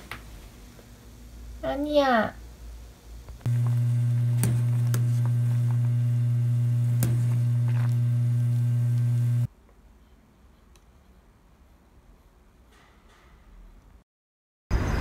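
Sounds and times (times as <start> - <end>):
loud electrical hum: 0.0 - 9.5.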